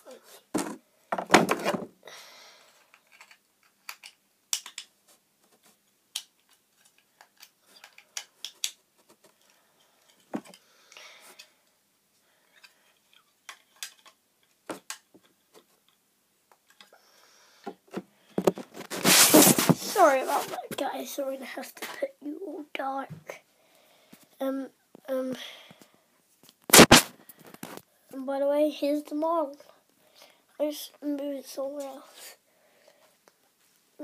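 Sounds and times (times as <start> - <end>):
microphone handling clicks and taps: 17.9 - 19.9
brief rustles: 18.4 - 20.6.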